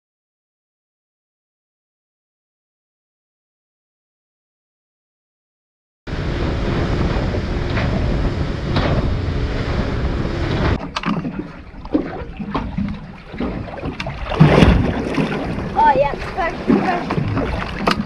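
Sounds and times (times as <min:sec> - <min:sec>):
wind buffeting: 0:06.1 - 0:10.8, 0:11.4 - 0:18.0
boat motor: 0:06.1 - 0:18.0
water rushing: 0:06.1 - 0:18.0.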